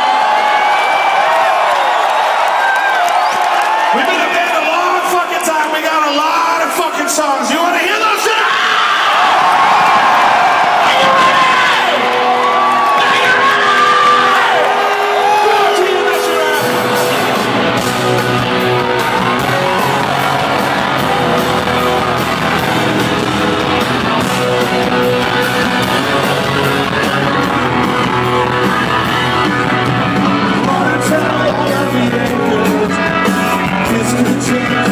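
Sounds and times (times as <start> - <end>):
rock band playing live: 10.5 - 34.9
electric guitar: 11.0 - 34.9
person singing: 30.2 - 34.9.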